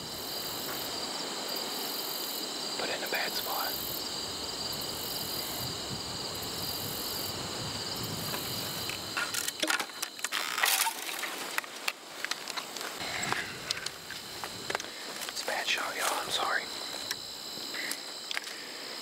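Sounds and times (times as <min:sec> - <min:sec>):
crickets trilling: 0:00.0 - 0:19.0
climbing gear clicking and rustling: 0:08.8 - 0:15.5.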